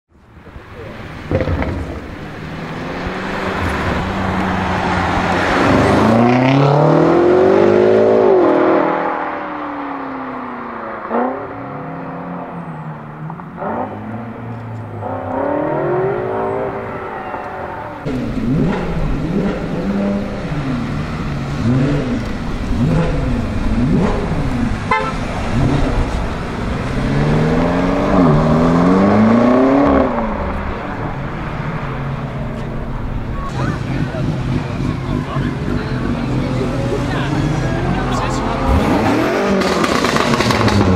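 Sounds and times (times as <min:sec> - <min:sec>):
car engine accelerating hard: 0:01.2 - 0:40.9
exhaust pops and crackles: 0:01.3 - 0:02.2, 0:39.5 - 0:40.9.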